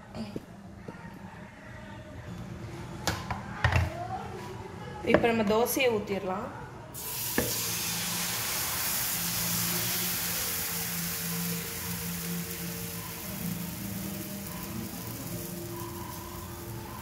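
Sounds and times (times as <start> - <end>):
batter sizzling on hot pan: 7.0 - 17.0.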